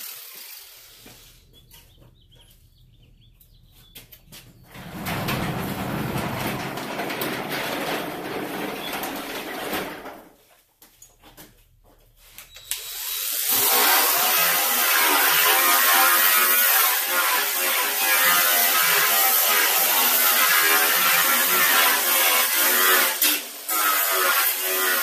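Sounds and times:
angle grinder sanding steel: 12.8s - 25.0s.

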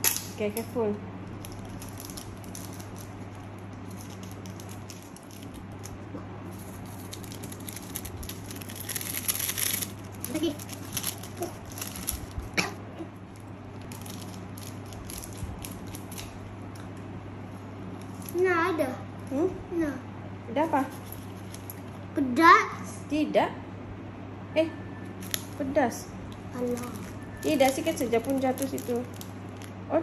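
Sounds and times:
steady low hum: 0.0s - 30.0s
plastic sachets crinkling: 1.2s - 12.6s, 13.3s - 16.8s, 20.9s - 22.0s, 25.2s - 25.6s, 26.3s - 29.8s.

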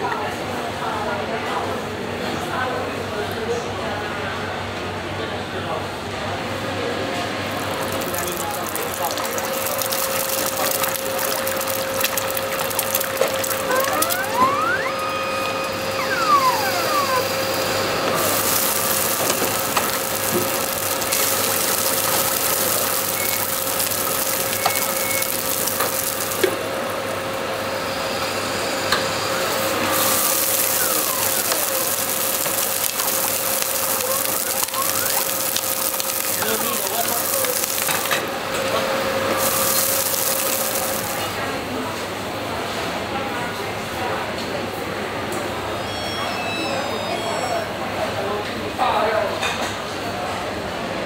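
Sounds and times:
food sizzling: 7.4s - 26.9s, 29.3s - 41.5s
machine hum: 7.4s - 28.6s
machine whining: 7.5s - 26.6s.

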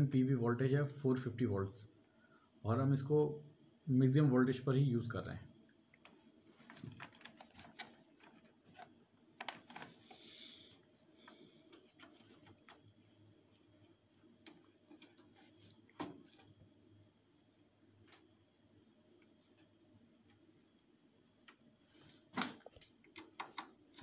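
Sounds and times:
cable handling rubbing: 6.0s - 20.8s.

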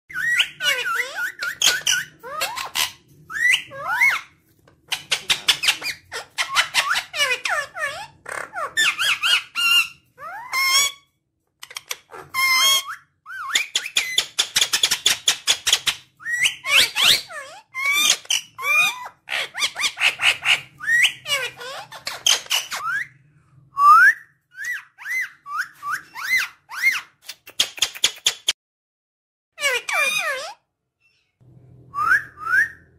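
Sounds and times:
parakeet squawking and calling: 0.1s - 23.2s, 24.5s - 28.4s, 29.6s - 31.3s.

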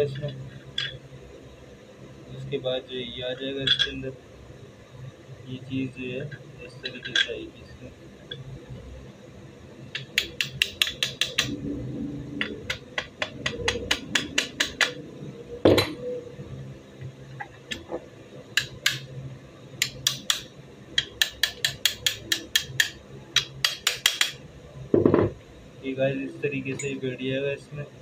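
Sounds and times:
tool tapping on metal: 9.9s - 11.5s, 12.4s - 15.0s, 18.6s - 19.0s, 19.8s - 24.4s.

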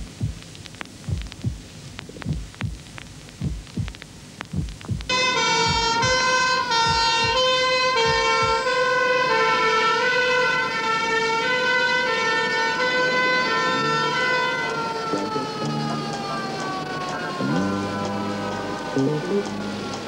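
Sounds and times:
heartbeat thumps: 0.0s - 8.7s
two-tone ambulance siren: 5.1s - 20.0s.

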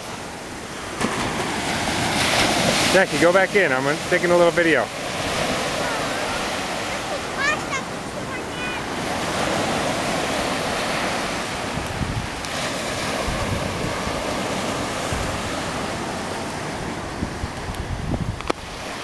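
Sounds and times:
ocean surf breaking on beach: 0.0s - 19.0s
wind buffeting microphone: 5.0s - 19.0s.

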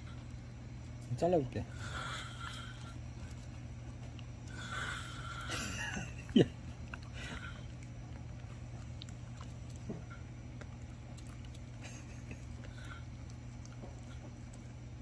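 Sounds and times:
steady low hum: 0.0s - 15.0s
dog chewing small clicks: 2.5s - 4.8s, 6.6s - 15.0s.

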